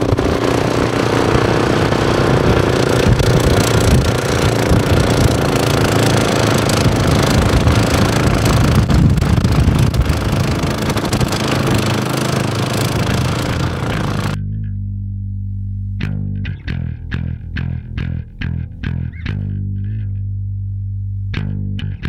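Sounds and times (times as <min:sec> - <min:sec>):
atv engine and snowblower running: 0:00.0 - 0:14.4
bass guitar: 0:00.0 - 0:22.0.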